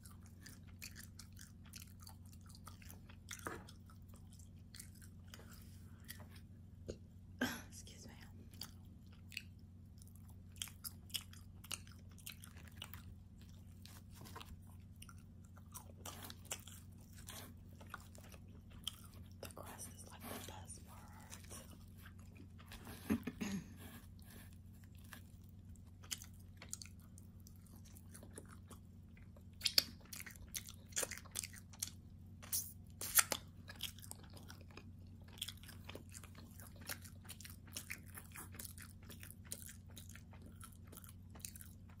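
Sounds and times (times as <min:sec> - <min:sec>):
person chewing crunchy crust: 0:00.0 - 0:07.1, 0:07.9 - 0:42.0
wet mouth clicks: 0:29.6 - 0:30.1.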